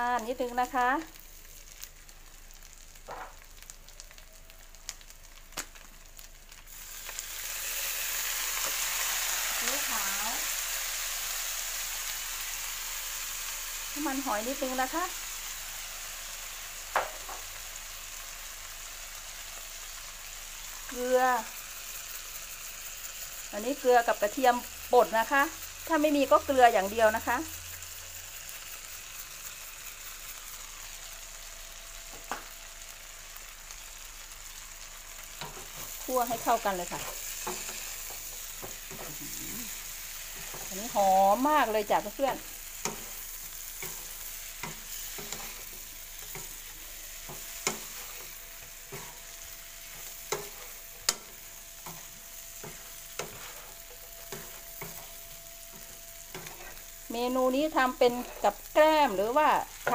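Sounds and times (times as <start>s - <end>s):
shrimp sizzling in a frying pan: 0.0s - 59.9s
spatula scraping and tapping pan: 35.4s - 39.2s, 42.8s - 56.9s.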